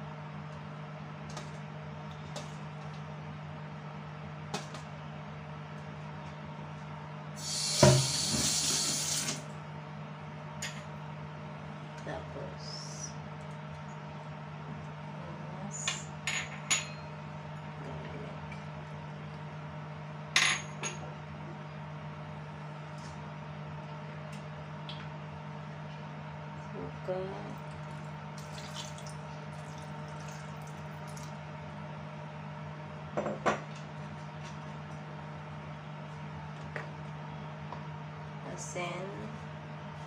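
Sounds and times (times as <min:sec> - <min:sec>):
kitchen tap running: 0:07.4 - 0:09.4, 0:27.6 - 0:31.3.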